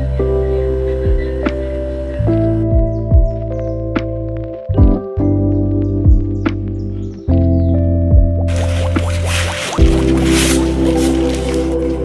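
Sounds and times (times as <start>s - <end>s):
soft kick drum: 2.8s - 3.4s, 4.8s - 5.0s, 6.1s - 6.4s
held chords: 8.2s - 12.0s.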